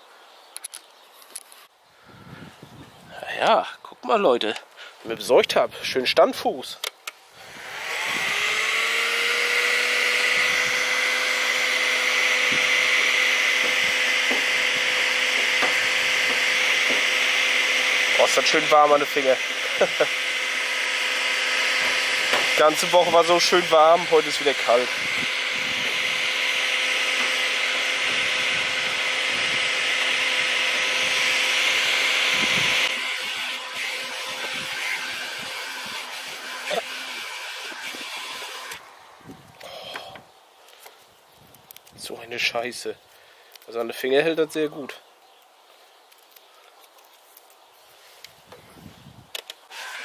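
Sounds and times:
heat gun blowing hot air: 7.4s - 38.9s, 49.7s - 50.0s.

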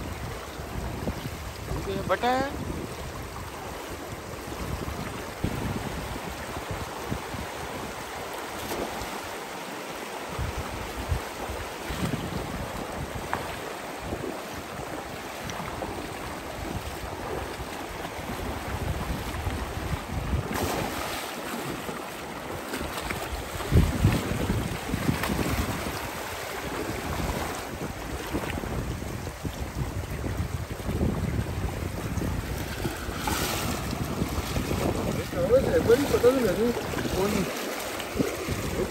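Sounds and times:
wind buffeting microphone: 0.0s - 8.2s, 10.3s - 21.1s, 22.8s - 38.9s
stream water rushing: 0.0s - 38.9s.

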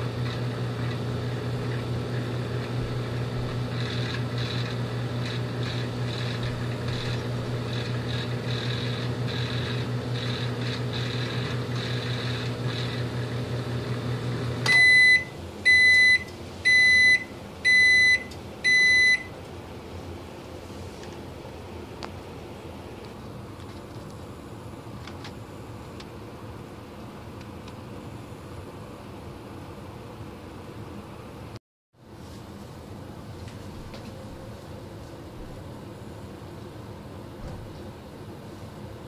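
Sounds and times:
microwave oven humming: 0.0s - 31.6s, 32.8s - 39.0s
microwave beeps: 14.6s - 19.4s.

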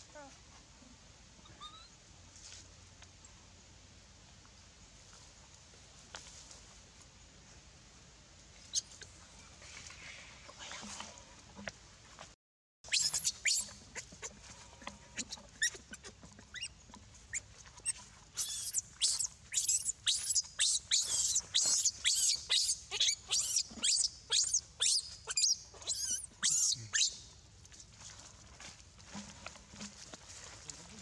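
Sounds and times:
baby monkey squealing: 1.5s - 1.9s, 12.9s - 14.3s, 15.2s - 27.2s.

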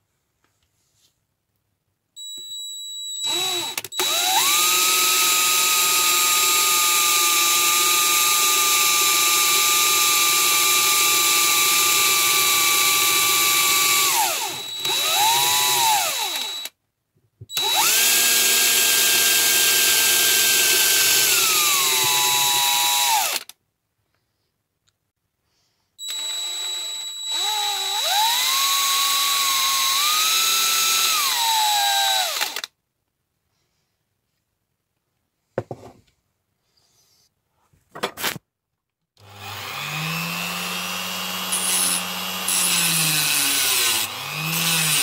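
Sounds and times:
power drill whining: 2.2s - 16.8s, 17.5s - 23.5s, 26.0s - 32.7s, 39.2s - 45.0s.

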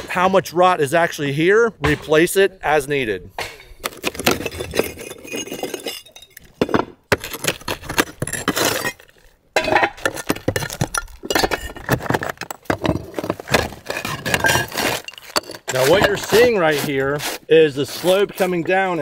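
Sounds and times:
pry bar breaking concrete tiles: 3.6s - 16.4s.

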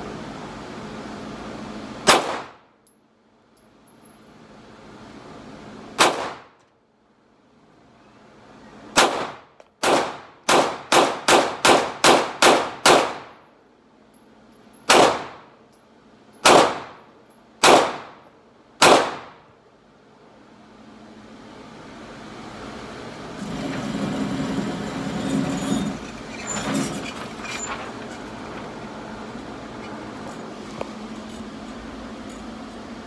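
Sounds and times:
pistol shots indoors: 2.0s - 2.6s, 6.0s - 6.5s, 9.0s - 13.3s, 14.9s - 15.4s, 16.4s - 17.0s, 17.6s - 18.2s, 18.8s - 19.4s.

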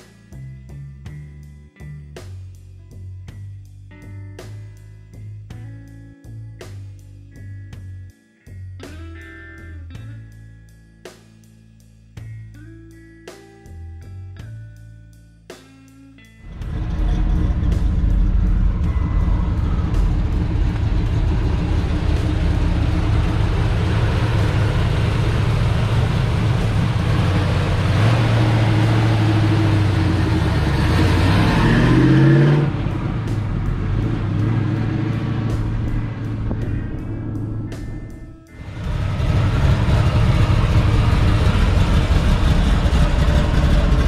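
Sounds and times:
car engine running and revving: 16.4s - 44.0s.

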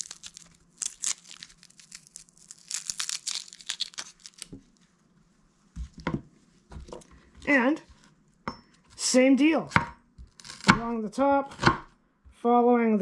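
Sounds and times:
papery skin crackling as peeled: 0.0s - 4.8s.

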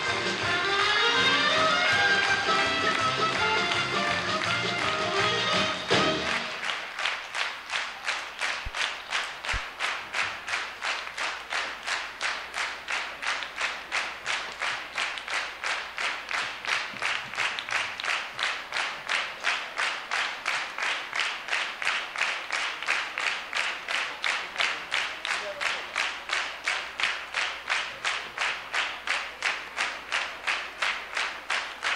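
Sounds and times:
audience clapping in rhythm: 0.0s - 31.9s.

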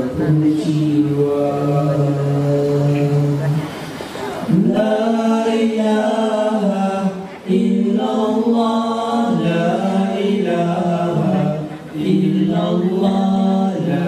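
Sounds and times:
male a cappella group singing: 0.0s - 14.0s.

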